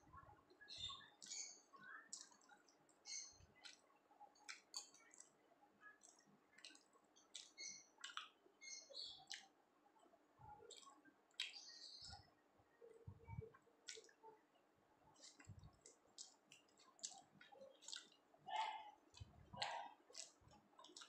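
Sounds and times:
person chewing with lip smacks: 1.2 - 9.6, 10.6 - 12.3, 13.3 - 14.2, 15.2 - 21.0.

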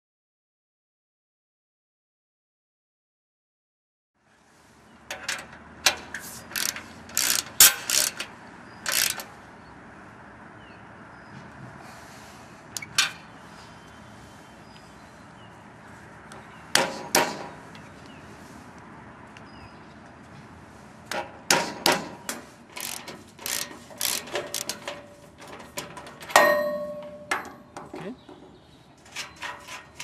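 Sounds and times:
loud ringing metal clang: 26.3 - 27.6
metal striking metal: 26.3 - 27.7.

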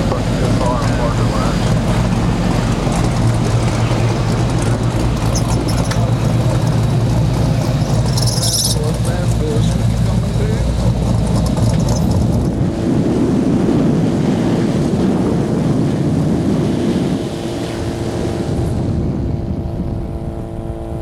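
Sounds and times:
car engines running: 0.0 - 14.5
wind noise on microphone: 0.0 - 21.0.

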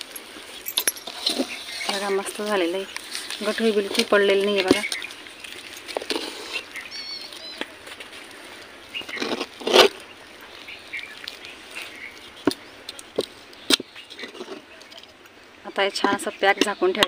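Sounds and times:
bird chirping: 0.0 - 17.0
metal spoon scraping dough in pot: 1.0 - 2.6.

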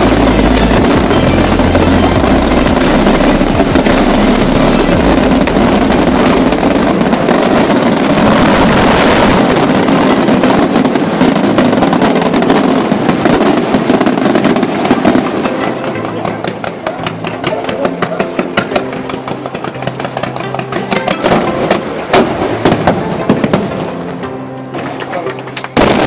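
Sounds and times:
deep firework booms: 0.0 - 24.0, 25.8 - 26.0
fireworks shell bursts and crackling: 0.0 - 24.0, 24.7 - 26.0.

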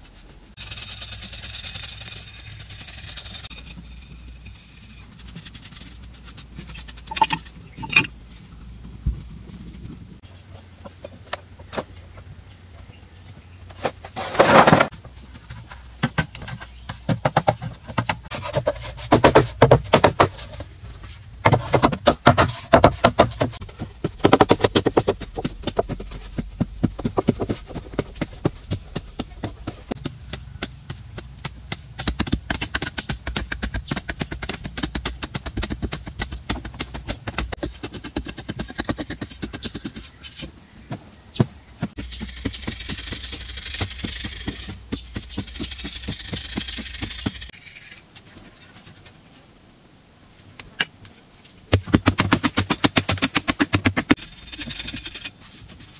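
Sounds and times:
loud scrape: 13.8 - 14.9.

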